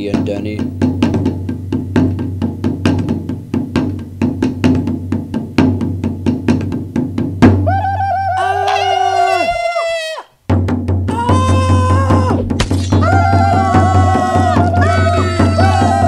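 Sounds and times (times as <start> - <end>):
wood-block clicking beat: 0.0 - 7.6.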